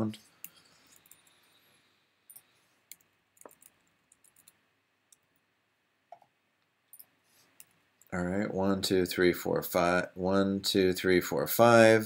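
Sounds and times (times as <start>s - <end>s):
mouse and keyboard clicks: 2.3s - 5.2s.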